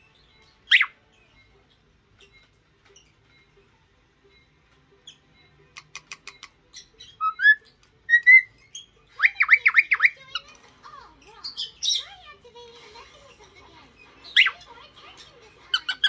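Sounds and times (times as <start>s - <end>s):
cockatiel whistling and chirping: 0.6s - 1.0s, 5.0s - 10.4s, 15.7s - 16.0s
cockatiel clicks: 5.8s - 6.6s.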